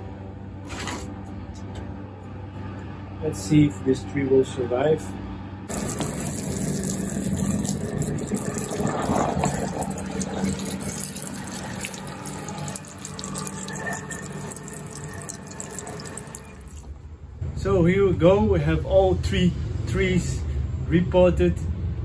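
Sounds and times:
water running and splashing: 5.7s - 16.9s.

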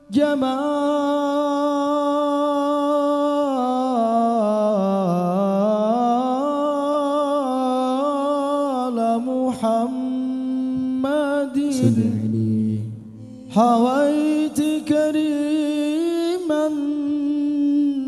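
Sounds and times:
man singing solo: 10.6s - 18.0s.

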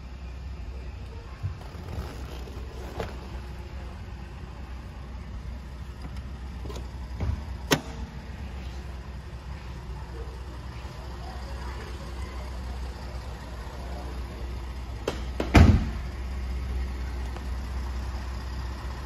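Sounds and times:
steady low hum: 0.0s - 19.0s
truck door shutting: 6.0s - 8.0s, 15.0s - 16.1s.

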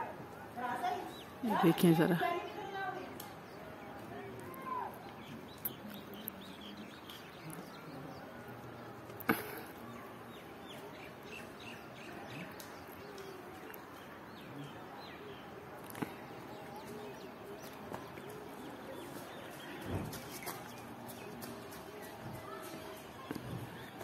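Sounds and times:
small birds chirping: 0.5s - 24.0s.

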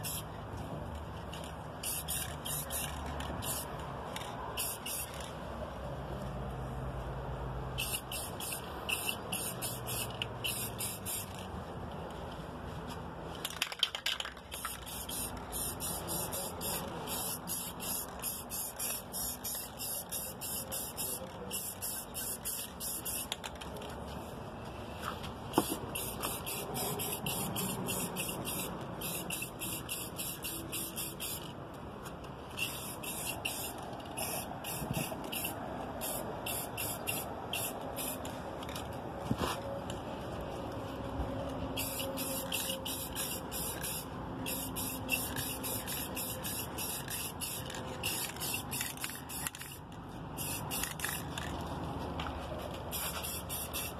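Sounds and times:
aerosol spray can hissing: 1.8s - 3.7s, 4.6s - 5.2s, 7.8s - 11.4s, 14.5s - 23.4s, 25.5s - 31.4s, 32.6s - 38.2s, 41.8s - 49.8s, 50.4s - 51.5s, 52.9s - 53.9s.

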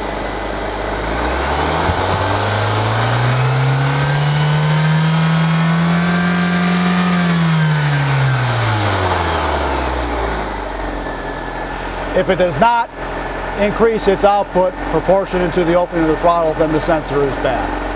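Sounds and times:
car engine revving: 0.0s - 17.9s.

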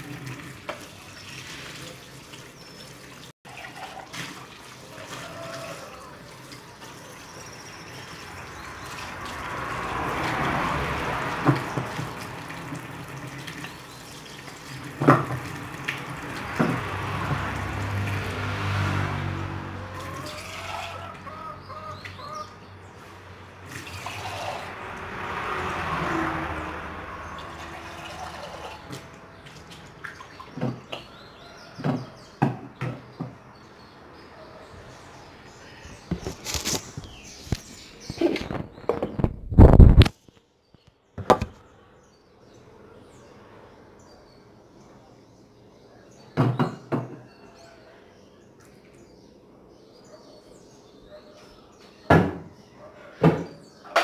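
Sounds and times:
water splashing in a sink: 0.0s - 18.8s, 23.6s - 26.5s.

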